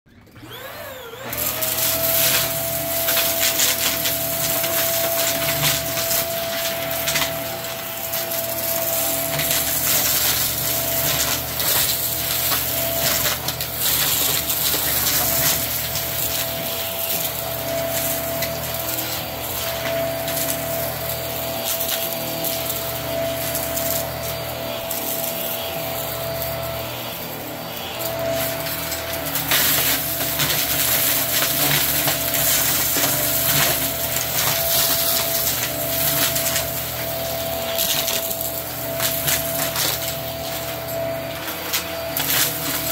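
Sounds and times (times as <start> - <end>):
stick vacuum motor whine: 0.1 - 42.9
debris clicking in vacuum head: 28.1 - 40.7.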